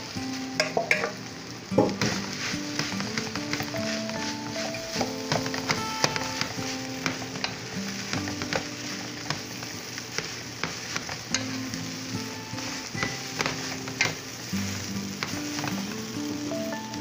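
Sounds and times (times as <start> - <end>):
rice sizzling in a wok: 0.0 - 17.0
wooden spatula scraping a wok: 0.0 - 17.0.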